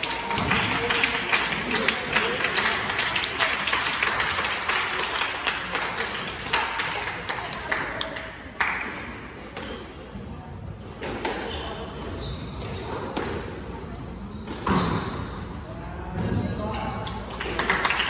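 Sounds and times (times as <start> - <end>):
spectators clapping: 0.0 - 9.0, 17.1 - 18.0.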